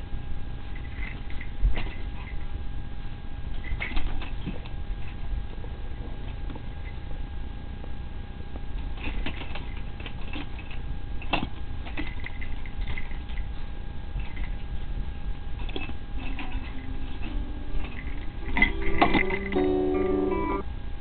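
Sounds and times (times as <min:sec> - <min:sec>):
faint steady hum: 0:00.0 - 0:21.0
paws and claws scrabbling: 0:00.7 - 0:02.5, 0:03.5 - 0:07.2, 0:08.8 - 0:14.9, 0:15.5 - 0:19.6.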